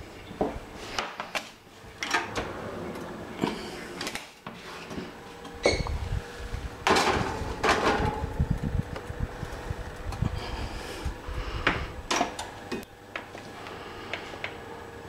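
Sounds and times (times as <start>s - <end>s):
oven door pulled open: 2.0s - 4.4s, 6.8s - 8.4s.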